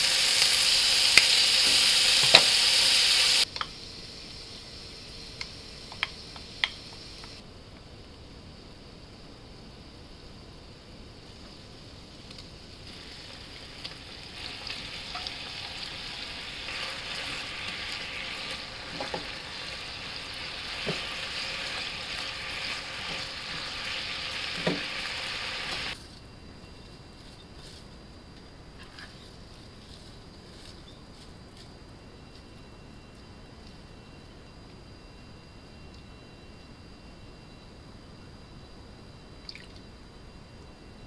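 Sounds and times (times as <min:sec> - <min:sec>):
meat sizzling in a frying pan: 0:00.0 - 0:03.5, 0:12.9 - 0:26.0.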